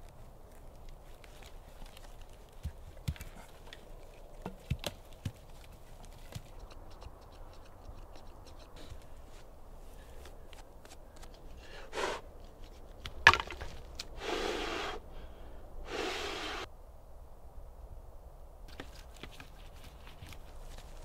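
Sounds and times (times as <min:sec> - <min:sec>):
dry wood cracking: 0:00.0 - 0:08.8, 0:12.6 - 0:14.1.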